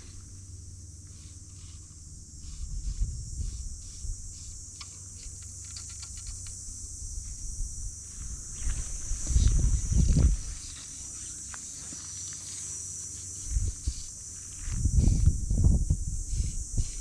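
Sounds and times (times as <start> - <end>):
high-pitched insect drone: 0.0 - 17.0
wind rumbling on microphone: 2.3 - 4.7, 6.1 - 10.8, 13.4 - 17.0
small ticks: 3.5 - 6.7.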